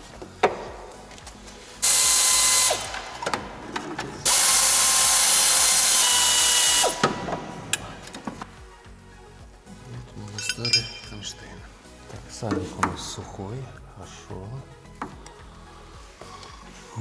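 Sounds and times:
pneumatic air ratchet spinning: 1.8 - 3.0, 4.3 - 7.0.

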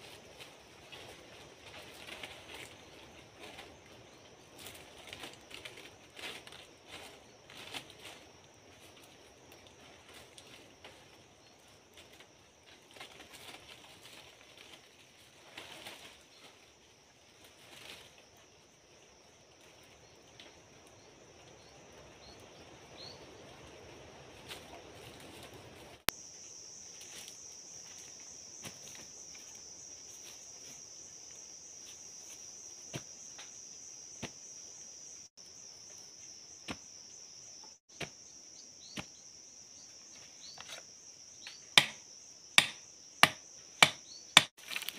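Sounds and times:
dry leaves and bamboo rustling: 0.0 - 21.2, 22.0 - 34.6, 43.3 - 44.9
insects buzzing: 0.0 - 44.9.

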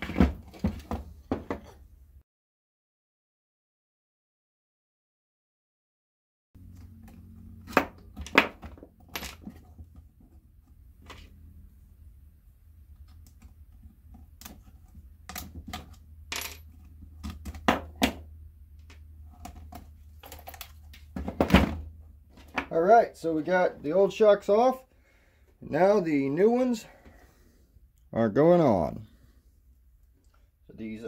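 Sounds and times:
small parts clicking and knocking: 18.8 - 21.3.

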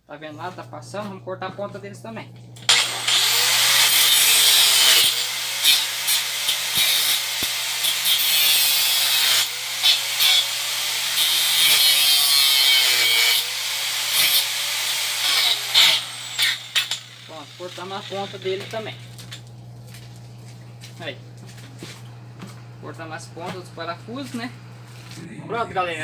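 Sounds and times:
angle grinder cutting steel: 2.6 - 19.3.

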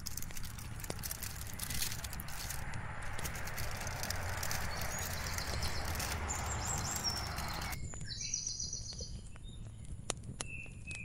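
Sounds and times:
steady rushing noise: 0.0 - 7.8
birds chirping: 0.0 - 11.0.

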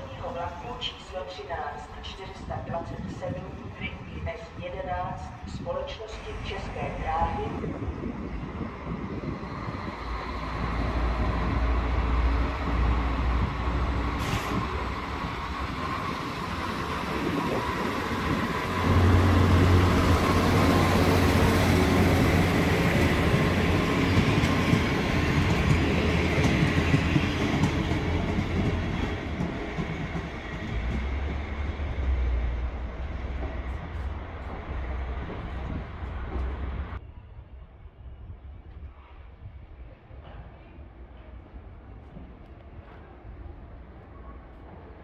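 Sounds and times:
diesel railcar engine: 6.0 - 37.0.

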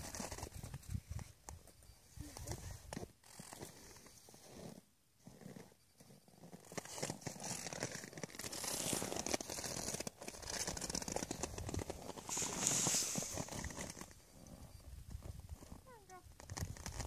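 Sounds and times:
horse muzzle rubbing microphone: 2.3 - 17.0
rushes of hiss: 12.3 - 13.6.

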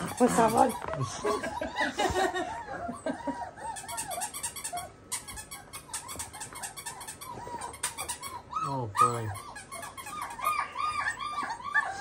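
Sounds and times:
person laughing: 0.4 - 3.5.

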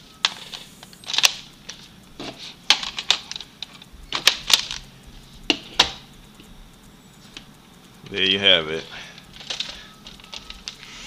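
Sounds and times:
plastic handling rattle: 0.2 - 4.9, 9.2 - 10.9.

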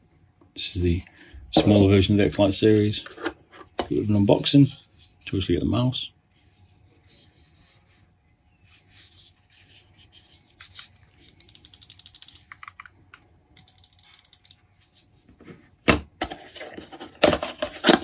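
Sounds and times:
plastic mouse clicks and rattles: 10.6 - 14.6.

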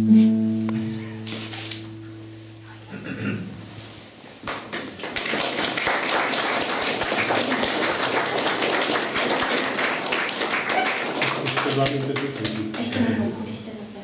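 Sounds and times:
audience applauding: 4.4 - 13.3.

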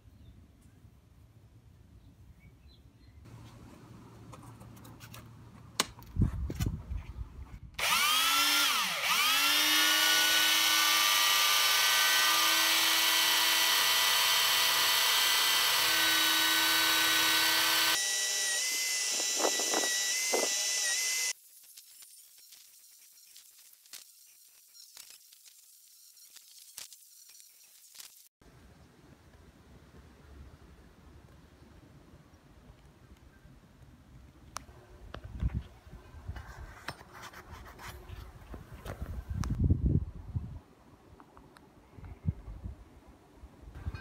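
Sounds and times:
wire wheel brush whining: 7.8 - 28.3.

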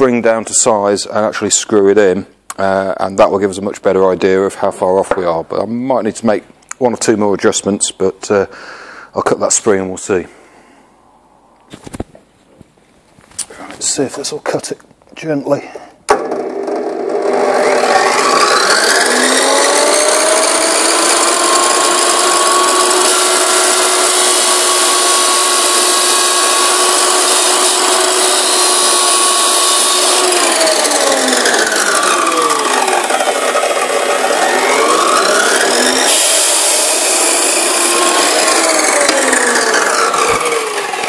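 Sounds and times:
chop saw cutting metal: 16.1 - 41.0.

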